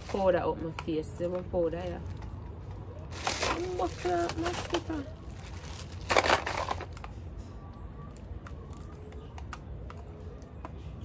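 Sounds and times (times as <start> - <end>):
plastic bag rustling: 1.7 - 7.1.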